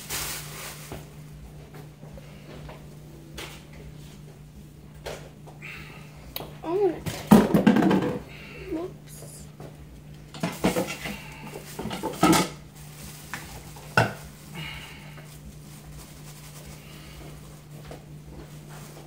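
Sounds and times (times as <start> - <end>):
steady low hum: 0.0 - 19.0
dishes and utensils clinking: 11.8 - 12.6.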